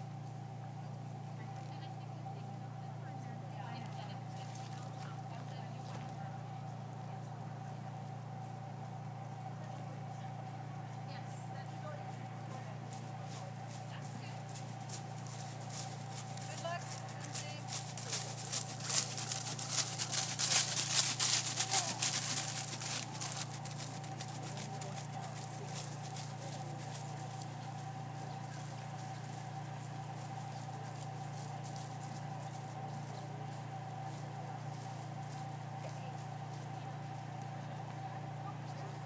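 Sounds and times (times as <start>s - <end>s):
horse hoofbeats on grass: 0.0s - 39.0s
low hum and hiss: 0.0s - 39.0s.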